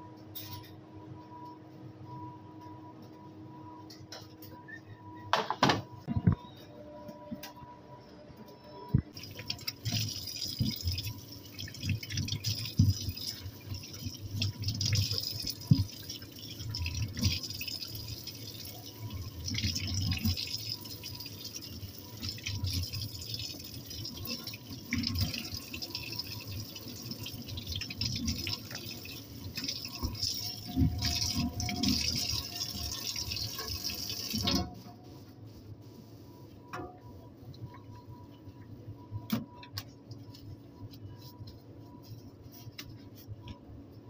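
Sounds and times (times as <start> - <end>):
splashing in a sink: 9.2 - 34.8
tap water running: 9.2 - 34.8.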